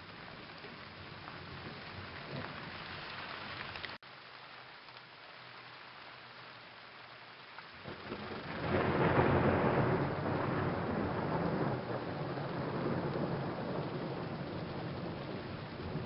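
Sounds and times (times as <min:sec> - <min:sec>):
steady rain: 0:00.0 - 0:16.0
thunder rumbling: 0:07.8 - 0:16.0.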